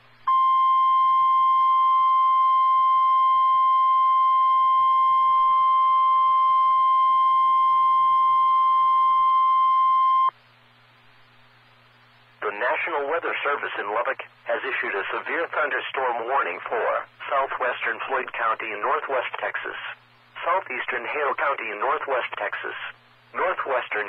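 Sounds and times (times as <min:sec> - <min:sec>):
receiver hiss and hum: 0:00.0 - 0:24.0
steady high alarm beep: 0:00.3 - 0:10.3.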